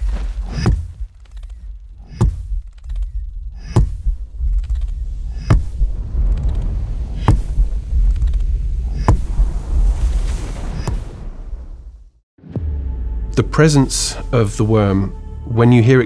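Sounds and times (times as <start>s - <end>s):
deep steady rumble: 0.0s - 15.6s
heavy rhythmic thumps: 0.4s - 9.4s.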